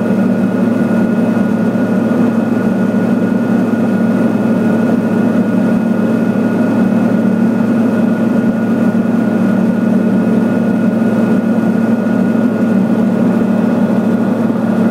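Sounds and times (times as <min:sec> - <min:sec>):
thin steady whine: 0:00.0 - 0:14.9
turboprop engine drone in cabin: 0:00.0 - 0:14.9.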